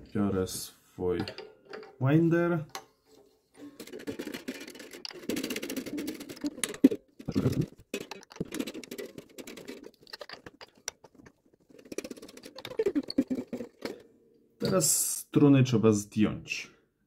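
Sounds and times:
string winder clicking and rattling: 3.6s - 14.0s.

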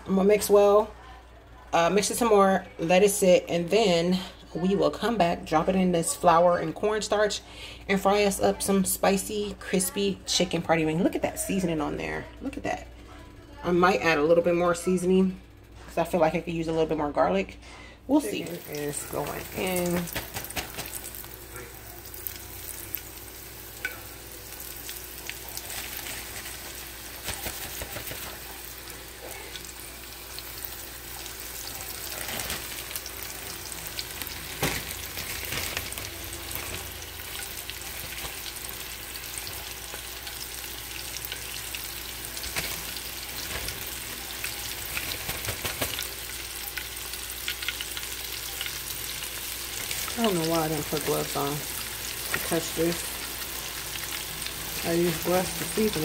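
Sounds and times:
chicken frying in oil: 18.2s - 56.0s.

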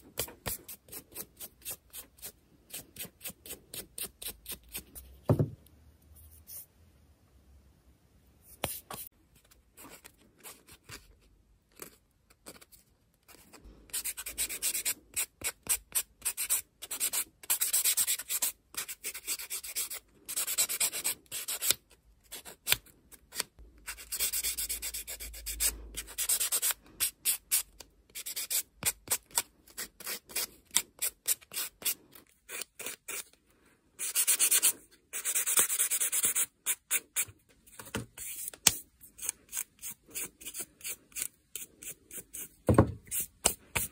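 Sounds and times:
nail file rubbing fingernail: 13.9s - 33.3s, 34.0s - 37.3s, 39.2s - 43.9s.

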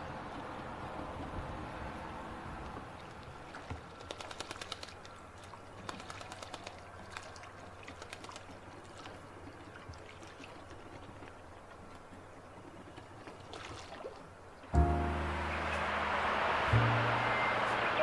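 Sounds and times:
bird splashing water: 3.1s - 11.4s.

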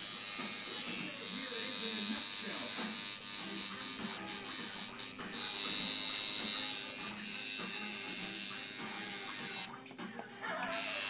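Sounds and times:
tattoo machine buzzing: 0.0s - 9.8s, 10.5s - 11.0s.

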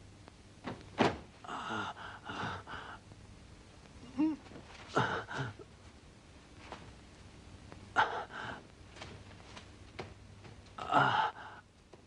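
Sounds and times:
man moaning: 1.4s - 2.7s, 4.0s - 4.4s, 10.8s - 11.6s
man gasping and groaning: 1.4s - 3.0s, 10.8s - 11.7s.

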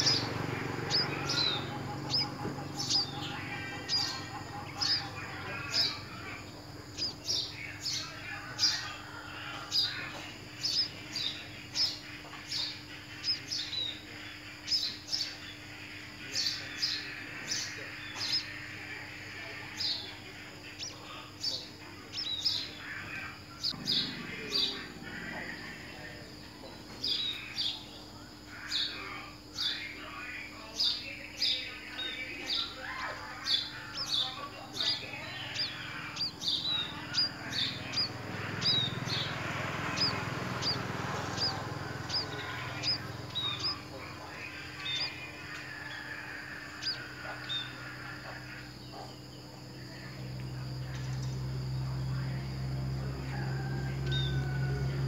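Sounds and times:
small bird chirping: 0.0s - 55.0s.

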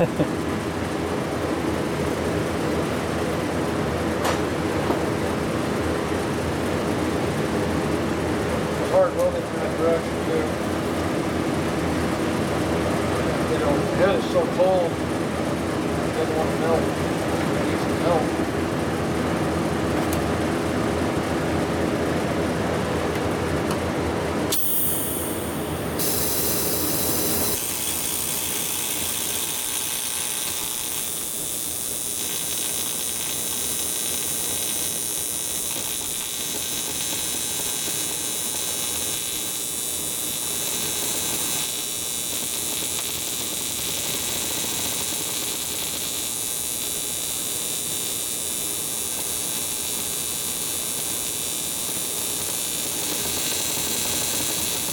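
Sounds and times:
welding arc buzzing hiss: 24.5s - 54.9s
welding arc striking click: 24.5s - 54.9s.

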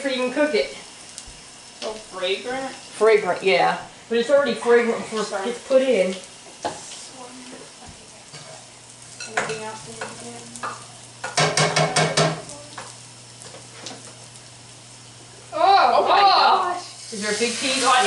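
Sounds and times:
garlic sizzling in a skillet: 0.0s - 18.0s.

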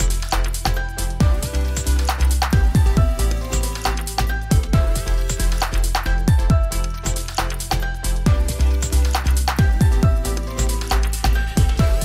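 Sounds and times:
electronic music: 0.0s - 12.0s
deep punchy kick drum: 1.2s - 1.9s, 2.5s - 3.2s, 4.5s - 5.4s, 8.3s - 9.0s, 9.6s - 10.3s, 11.6s - 12.0s.

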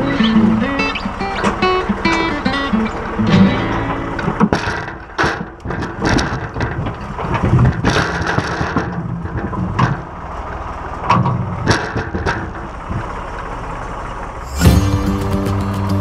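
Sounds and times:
tractor engine running: 0.0s - 16.0s
firewood knocking and thudding: 4.2s - 10.2s, 11.0s - 13.1s.

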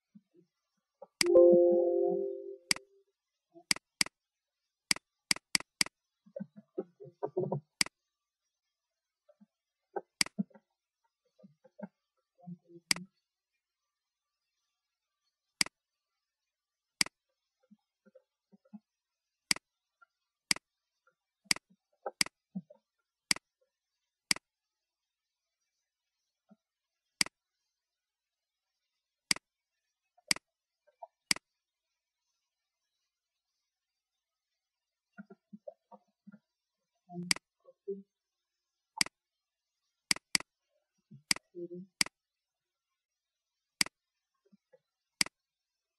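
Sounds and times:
computer mouse clicking: 5.3s - 5.9s, 40.1s - 40.4s.

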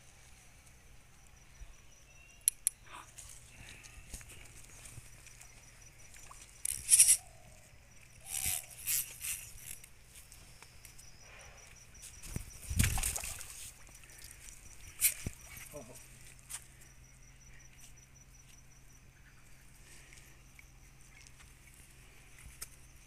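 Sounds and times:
fish splashing in water: 12.6s - 14.4s.

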